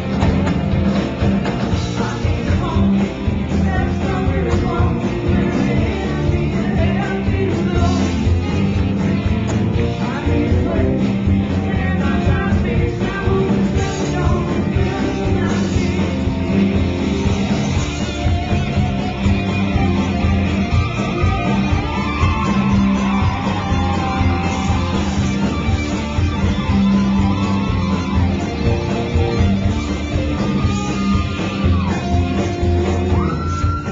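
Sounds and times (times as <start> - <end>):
live rock band playing: 0.0 - 33.9.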